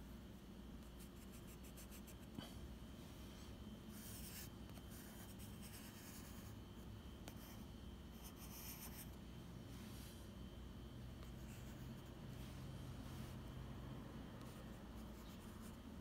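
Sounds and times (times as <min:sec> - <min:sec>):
pencil scratching on paper: 0:00.9 - 0:02.2, 0:03.9 - 0:06.6, 0:07.3 - 0:09.1.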